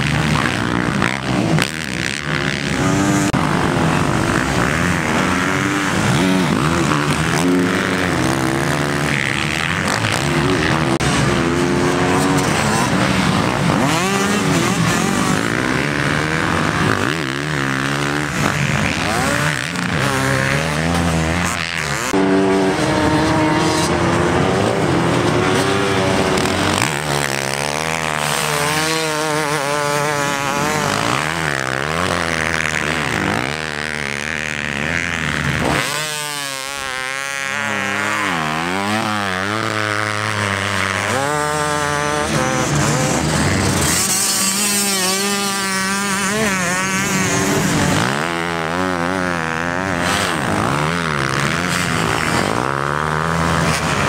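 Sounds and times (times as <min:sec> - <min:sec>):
motocross engines revving: 0:00.0 - 0:54.0.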